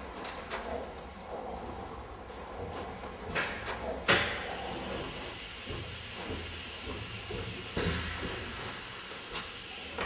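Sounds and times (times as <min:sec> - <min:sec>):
burst of hiss: 0:07.1 - 0:10.0.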